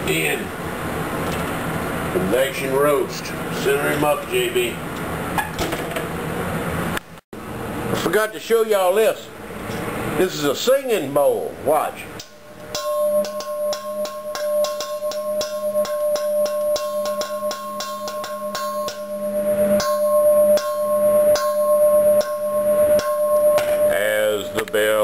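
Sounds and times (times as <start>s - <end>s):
singing bowl ringing tone: 12.2s - 25.0s.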